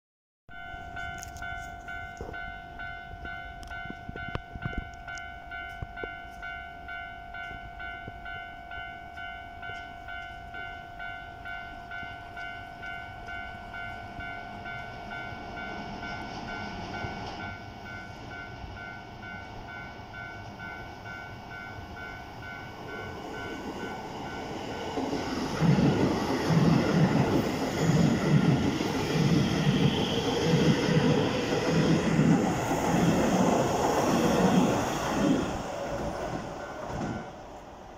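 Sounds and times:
train wheels clattering: 0:23.0 - 0:37.4.

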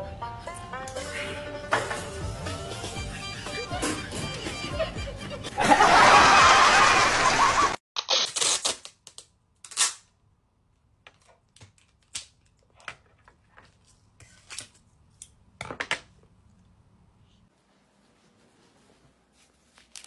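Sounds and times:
tape ripping off roll: 0:08.0 - 0:10.1.

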